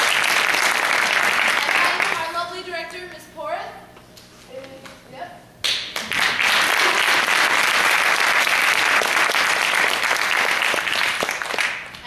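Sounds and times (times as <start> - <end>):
audience applause: 0.0 - 2.3, 6.0 - 12.0.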